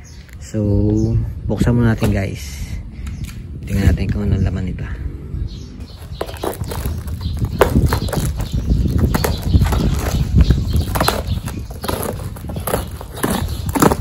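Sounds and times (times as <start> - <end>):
low rumbling handling noise: 5.4 - 14.0.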